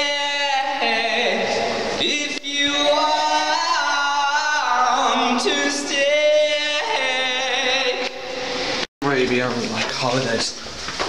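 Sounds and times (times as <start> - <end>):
voices singing long held notes: 0.0 - 8.8.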